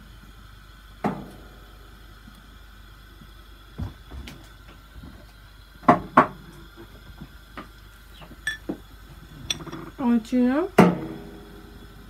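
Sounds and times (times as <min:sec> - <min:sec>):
metal spoon clinking on dish: 0:08.5 - 0:08.7.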